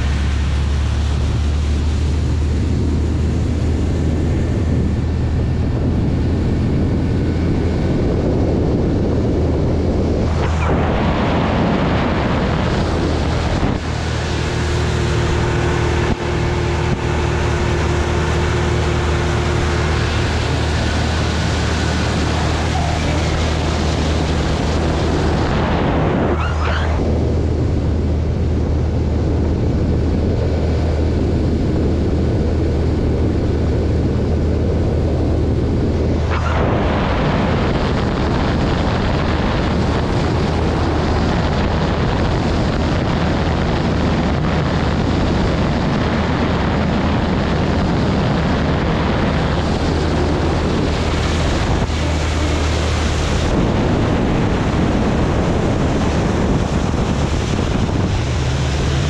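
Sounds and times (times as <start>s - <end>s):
outboard engine running: 0.0s - 59.0s
water noise against hull: 0.0s - 59.0s
wind rushing on microphone: 0.0s - 59.0s.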